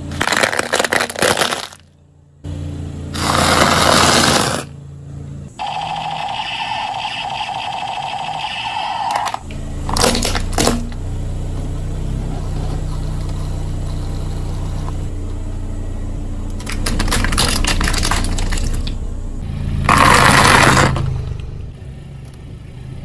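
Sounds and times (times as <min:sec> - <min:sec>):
car engine humming: 0:00.0 - 0:23.0
plastic toy cracking under tyre: 0:00.1 - 0:01.8, 0:16.6 - 0:19.0.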